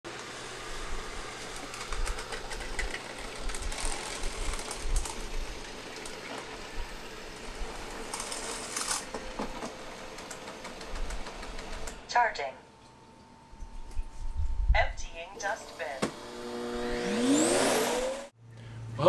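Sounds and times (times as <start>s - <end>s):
robot vacuum running: 0.1s - 12.0s, 15.4s - 18.3s.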